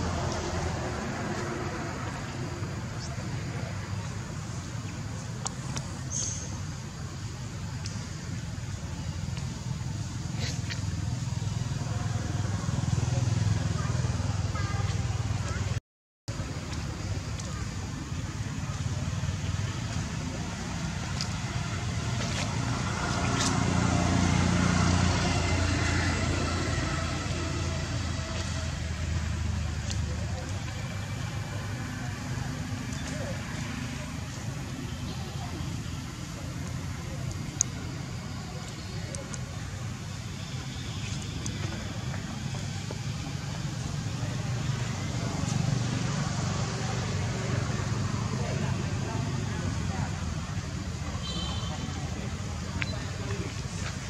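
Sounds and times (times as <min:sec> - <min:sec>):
outdoor background hiss: 0:00.0 - 0:15.6
passing vehicle engine rumble: 0:00.0 - 0:54.0.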